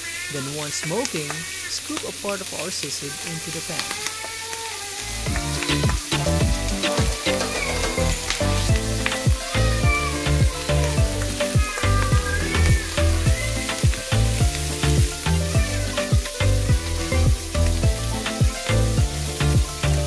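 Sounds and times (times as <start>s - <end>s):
meat sizzling in a pan: 0.0s - 20.0s
background music with a beat: 5.3s - 20.0s.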